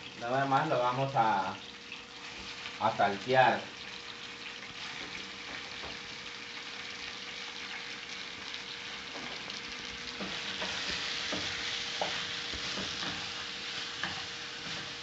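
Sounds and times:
fish sizzling in frying pan: 0.0s - 15.0s
spatula scraping and knocking pan: 10.1s - 15.0s.

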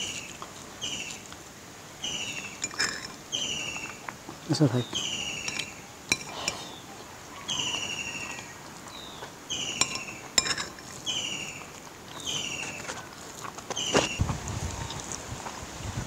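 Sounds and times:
metal spoon clinking glass bowl: 2.5s - 4.0s, 5.3s - 6.7s, 9.7s - 11.0s.

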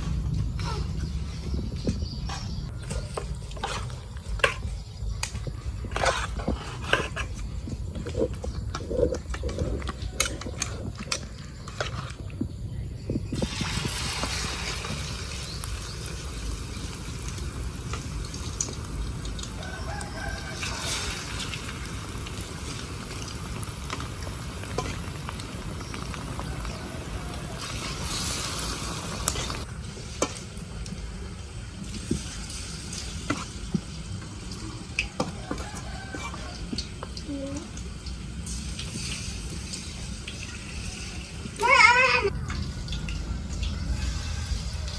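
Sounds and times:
deep-frying sizzle: 0.0s - 44.9s
rooster crowing: 19.5s - 21.5s, 26.4s - 28.0s, 35.1s - 36.8s, 43.6s - 44.9s.

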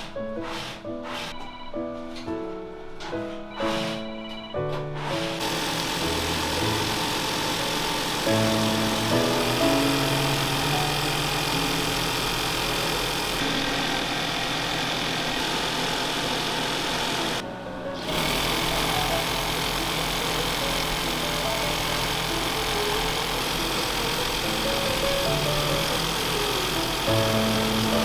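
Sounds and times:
sewing machine running: 5.0s - 17.4s, 18.0s - 28.0s.

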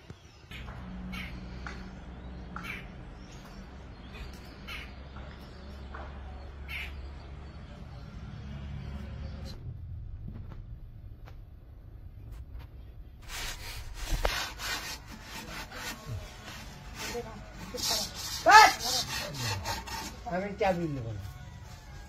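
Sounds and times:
crows cawing: 0.5s - 1.8s, 2.6s - 3.0s, 6.7s - 7.0s
steady low rumble: 8.9s - 13.2s.

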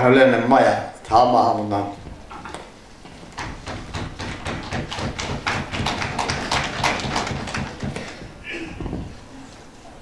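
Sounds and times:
audience clapping: 4.2s - 8.2s.

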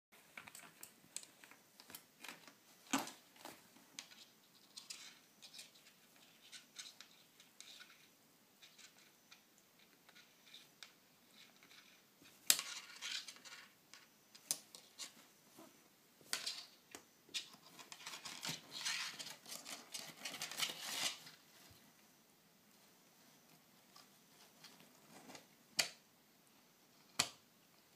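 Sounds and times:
kitten clawing fabric and floor: 23.8s - 25.5s.

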